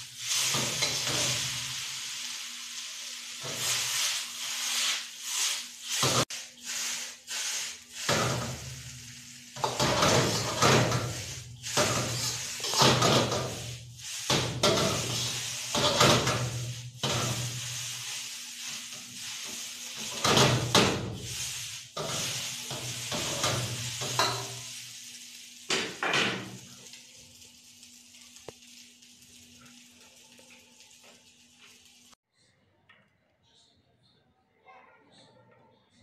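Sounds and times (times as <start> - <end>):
noodles sizzling in a wok: 0.0 - 32.2
metal ladle scraping a wok: 3.3 - 25.0.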